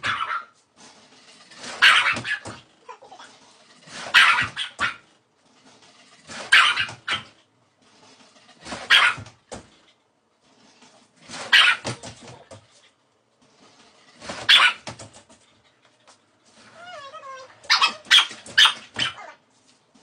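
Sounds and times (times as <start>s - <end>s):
dogs barking: 0.0s - 0.6s, 1.7s - 2.6s, 4.0s - 5.1s, 6.4s - 7.4s, 8.8s - 9.4s, 11.4s - 12.0s, 14.4s - 15.0s, 17.6s - 19.4s
dog whining: 16.6s - 19.4s.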